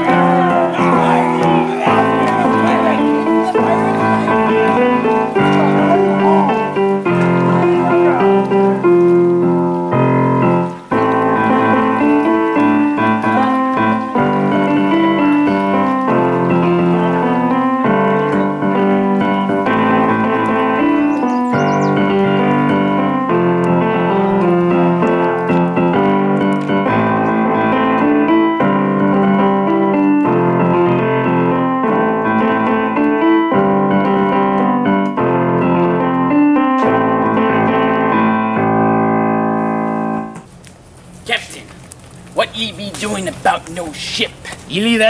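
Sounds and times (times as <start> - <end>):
piano chords: 0.0 - 40.5.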